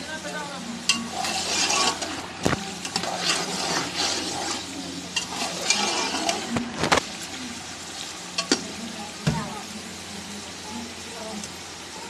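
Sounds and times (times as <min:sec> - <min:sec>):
meat sizzling in a pot: 0:00.0 - 0:12.0
spoon scraping wetly: 0:00.9 - 0:07.0.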